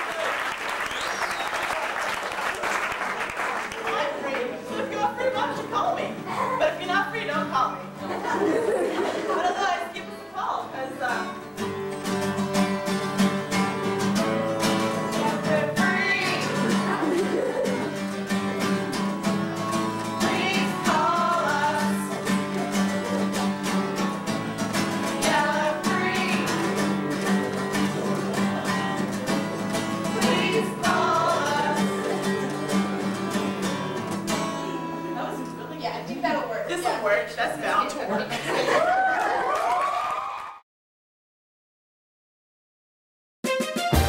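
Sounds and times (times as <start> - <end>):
acoustic guitar strumming: 4.6 - 37.3, 43.5 - 44.0
person singing: 15.1 - 17.9, 20.0 - 23.2, 25.2 - 33.6.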